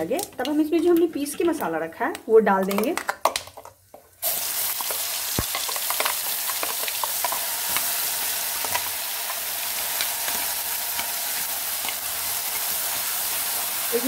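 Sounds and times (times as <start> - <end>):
spice paste sizzling in hot oil: 3.4 - 14.0.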